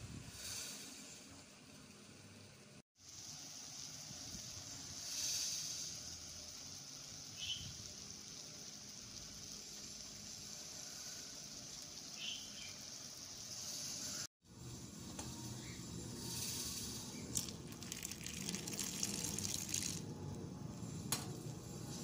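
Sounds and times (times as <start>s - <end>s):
chicken sizzling in oil: 3.0s - 15.0s
oil popping: 17.2s - 20.1s.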